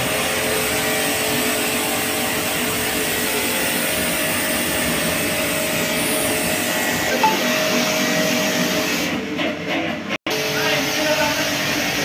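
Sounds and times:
pressure washer motor hum: 0:00.0 - 0:09.2.

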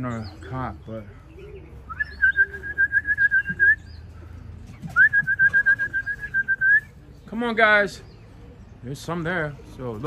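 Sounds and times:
person whistling: 0:01.9 - 0:03.8, 0:05.0 - 0:06.9.

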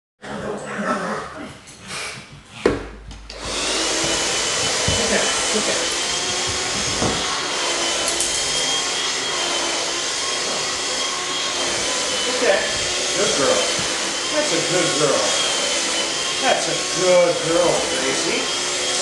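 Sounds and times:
handheld vacuum cleaner whine: 0:03.2 - 0:19.0.

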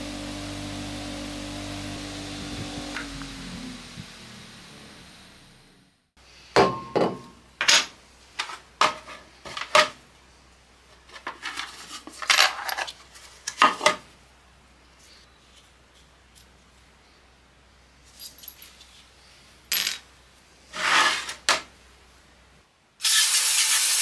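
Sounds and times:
polishing machine motor running down: 0:00.0 - 0:06.1.

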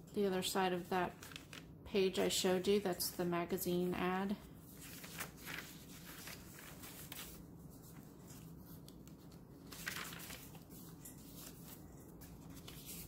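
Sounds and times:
paper pages rustling: 0:00.8 - 0:01.8, 0:04.6 - 0:13.0.

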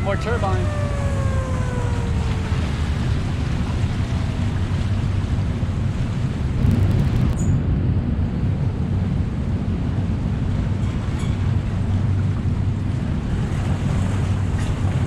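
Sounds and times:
warning siren falling tone: 0:00.0 - 0:04.4.

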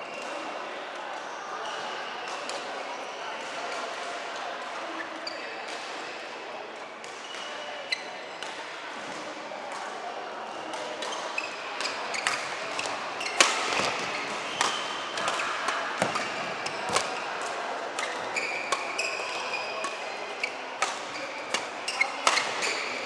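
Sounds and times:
shoes squeaking on court floor: 0:07.2 - 0:08.3, 0:11.0 - 0:23.0
racket hitting shuttlecock: 0:11.8 - 0:19.0, 0:20.8 - 0:22.7.

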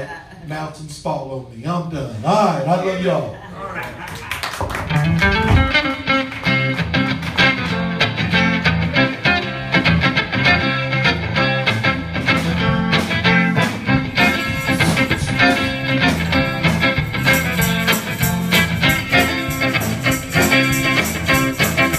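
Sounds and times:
amplified electric guitar: 0:04.6 - 0:21.9
bass line: 0:04.7 - 0:21.9.

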